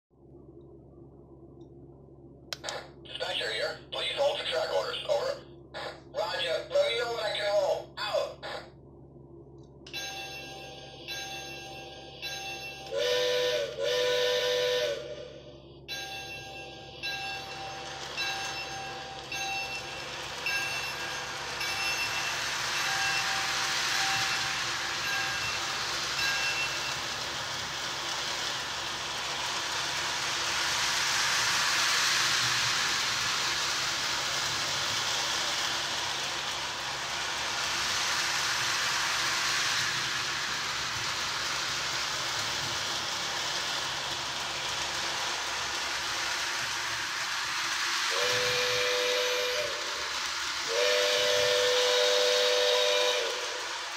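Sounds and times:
toy locomotive bell ringing: 9.9 - 13.2, 15.9 - 46.8
toy train wheels on track: 9.9 - 53.9
steam whistle blasts: 12.9 - 15.5, 48.1 - 50.0, 50.7 - 53.7.

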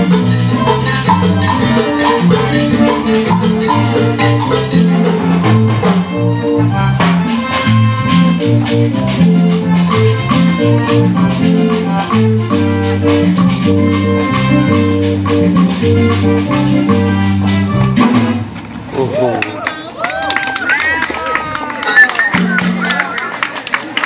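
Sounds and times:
live latin dance band: 0.0 - 24.0.

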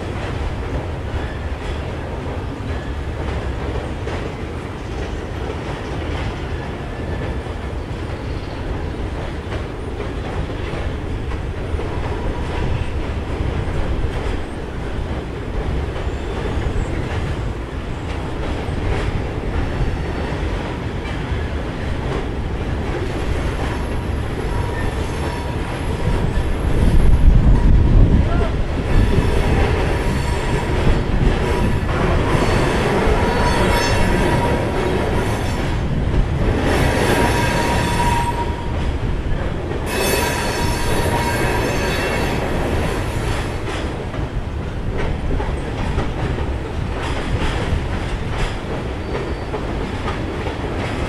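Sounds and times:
train wheels rumbling on rails: 0.0 - 51.0.

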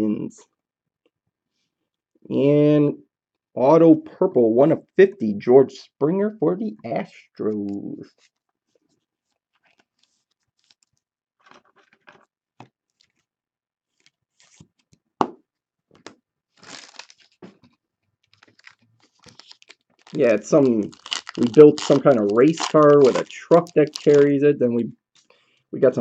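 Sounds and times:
plastic sleeve rustling: 8.1 - 12.1, 13.9 - 15.0, 16.0 - 24.4.

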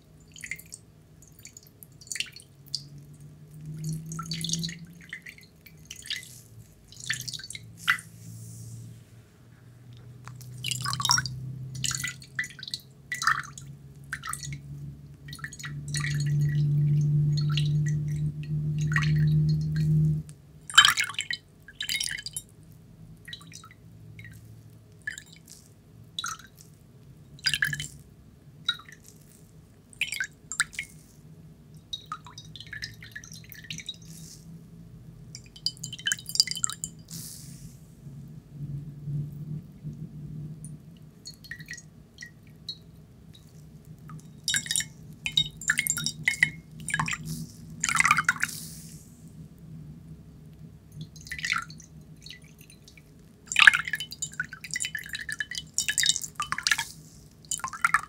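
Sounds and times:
water dripping onto dishes: 0.1 - 8.0, 10.0 - 28.0, 28.6 - 31.0, 31.7 - 34.2, 35.2 - 37.2, 40.6 - 48.5, 50.5 - 58.0
steady low hum: 2.5 - 20.8, 26.8 - 53.5.

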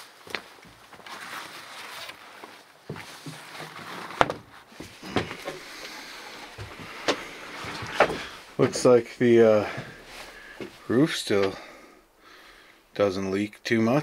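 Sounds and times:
faint rustling hiss: 0.0 - 14.0
footsteps in boots on wood floor: 2.8 - 9.0.

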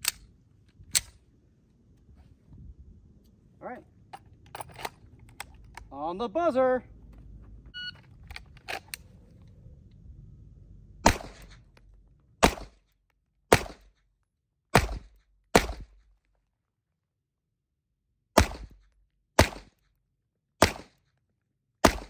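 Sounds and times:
handgun shots: 11.0 - 11.6, 12.4 - 12.8, 13.5 - 14.0, 14.7 - 16.0, 20.6 - 21.0.

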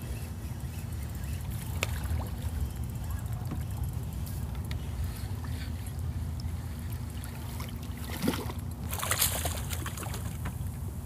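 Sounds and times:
steady low rumble: 0.0 - 11.0
fish splashing at water surface: 7.2 - 10.4.

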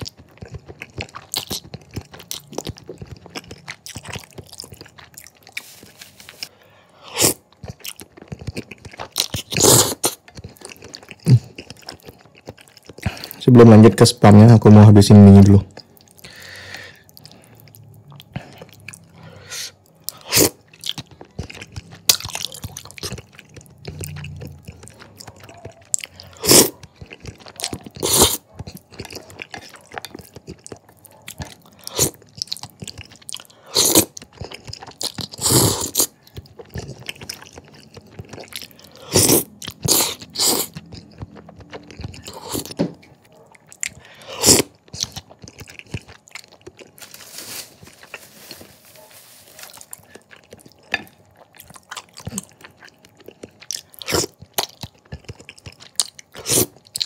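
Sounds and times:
wet chewing: 0.0 - 13.4, 15.7 - 57.0.

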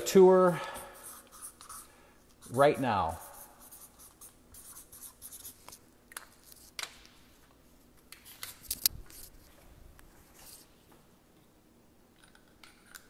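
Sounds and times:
marker strokes on paper: 0.6 - 6.7.

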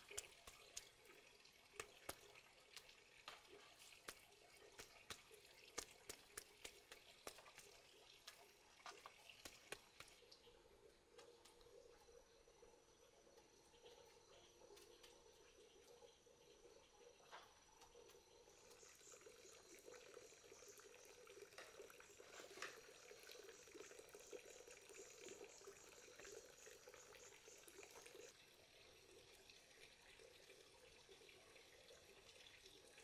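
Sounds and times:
faint running water from tap: 0.0 - 11.0, 18.1 - 33.0.

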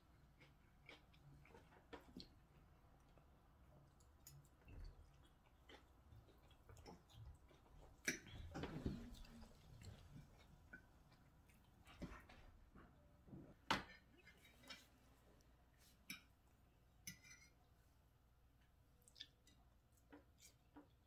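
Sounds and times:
person chewing food: 0.0 - 12.4, 19.0 - 21.0.

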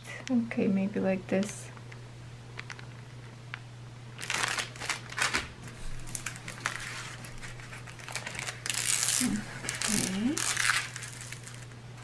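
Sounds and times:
low steady hum: 0.0 - 12.0
plastic bags crinkling: 4.1 - 11.8.

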